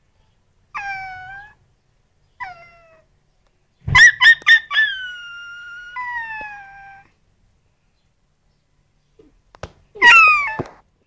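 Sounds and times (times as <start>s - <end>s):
puppy whining: 0.2s - 1.6s, 2.4s - 3.1s, 4.0s - 7.2s, 10.0s - 10.8s
puppy yelping: 0.7s - 1.6s, 2.4s - 3.0s, 3.9s - 7.1s, 10.0s - 10.8s.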